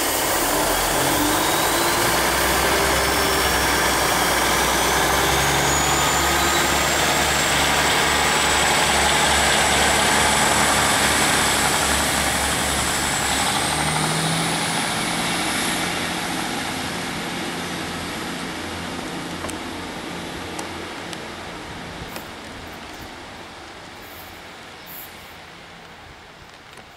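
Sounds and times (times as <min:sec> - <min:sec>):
high whine rising in pitch: 0:00.0 - 0:20.5
diesel train engine throbbing: 0:00.0 - 0:24.7.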